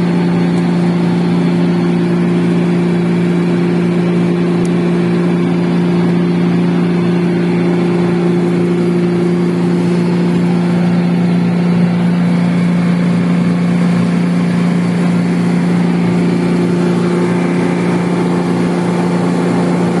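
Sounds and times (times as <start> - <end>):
refrigeration unit humming: 0.0 - 20.0.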